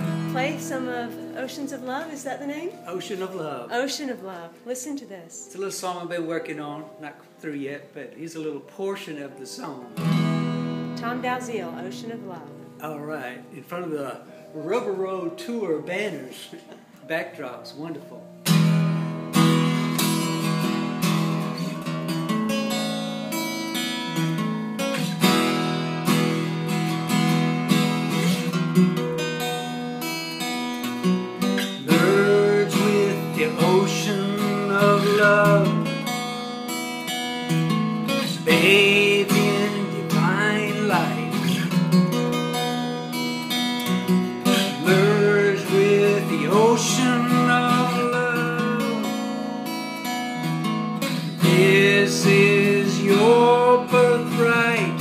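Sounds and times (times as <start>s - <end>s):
acoustic guitar strumming: 0.0s - 55.0s
man singing: 31.6s - 36.0s, 38.2s - 41.8s, 44.5s - 49.4s, 51.3s - 55.0s.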